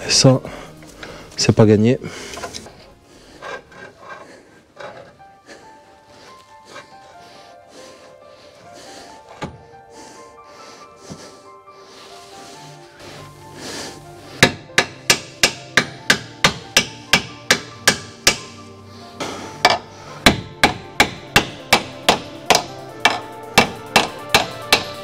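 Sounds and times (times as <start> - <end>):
rapid hammer blows on metal: 14.4 - 18.6, 19.6 - 25.0.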